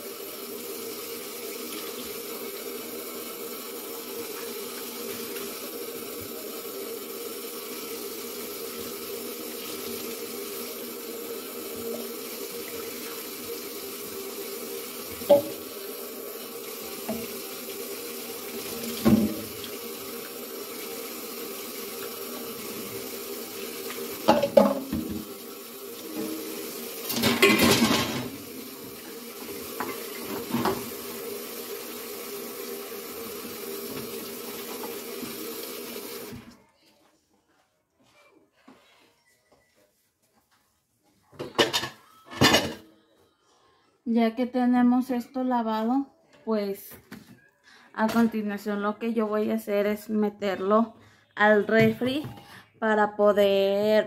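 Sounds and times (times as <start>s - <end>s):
tap running into sink: 15.1s - 15.7s, 17.0s - 17.4s, 18.5s - 19.8s, 23.8s - 25.4s, 26.1s - 31.0s, 33.4s - 35.6s.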